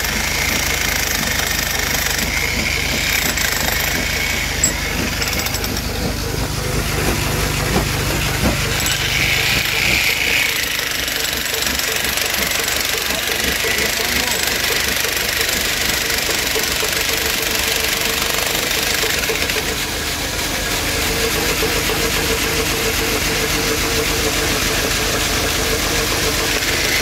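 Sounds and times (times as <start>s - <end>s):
diesel engine knocking: 0.0s - 27.0s.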